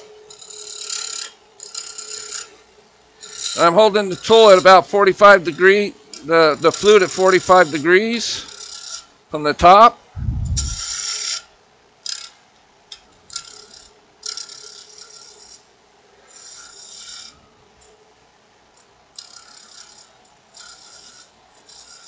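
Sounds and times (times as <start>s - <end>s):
lathe gouge hissing cuts: 6.4s - 9.0s.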